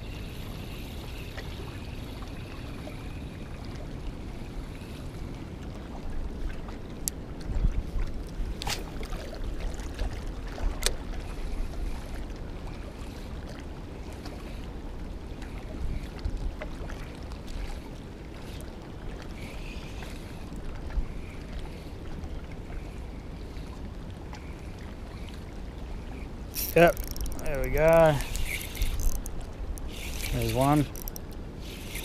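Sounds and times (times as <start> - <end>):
sharp clicks: 26.6 - 31.3.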